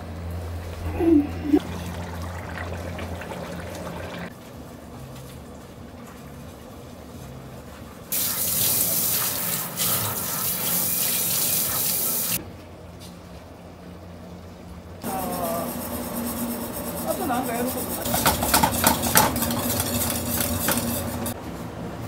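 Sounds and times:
low steady hum: 0:00.0 - 0:07.6
tap water running into sink: 0:01.6 - 0:04.3.

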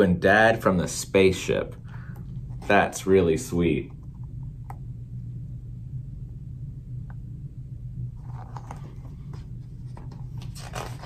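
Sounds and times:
steady low hum: 0:00.0 - 0:11.0
book rustling and clicking: 0:08.2 - 0:11.0.

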